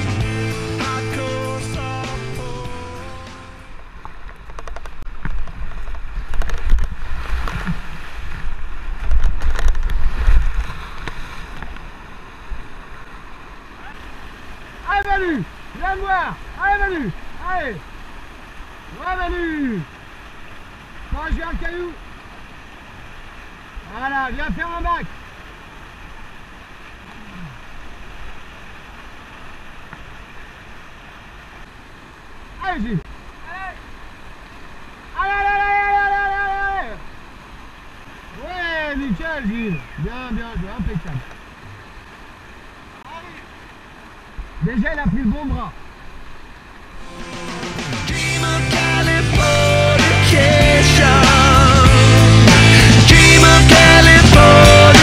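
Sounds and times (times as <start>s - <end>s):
water buffeting microphone: 0.0s - 55.0s
whitewater rushing: 0.0s - 55.0s
paddle strokes: 3.8s - 19.3s, 44.3s - 49.4s
water spray splashing: 46.9s - 55.0s.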